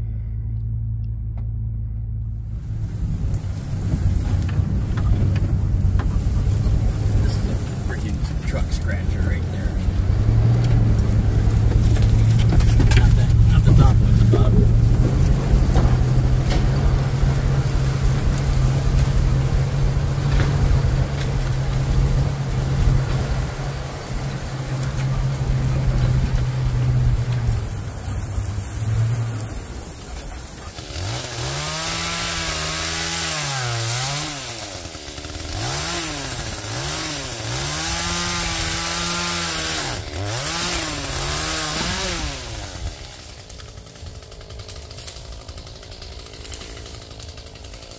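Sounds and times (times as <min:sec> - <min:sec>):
truck engine droning: 0:00.0 - 0:47.9
chainsaw revving and cutting: 0:03.0 - 0:47.9.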